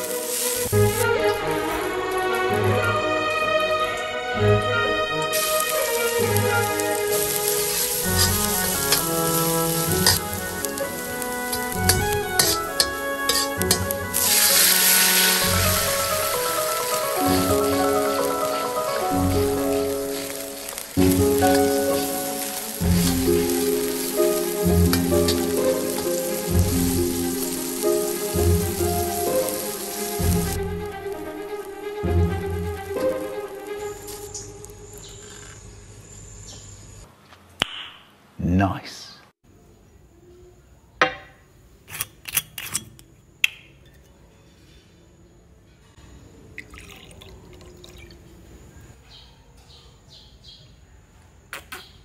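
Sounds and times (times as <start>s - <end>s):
sauce sizzling in a wok: 0.0s - 2.4s, 4.8s - 35.2s
metal ladle clicking on wok: 11.5s - 13.9s
liquid pouring into shot glass: 46.6s - 48.3s.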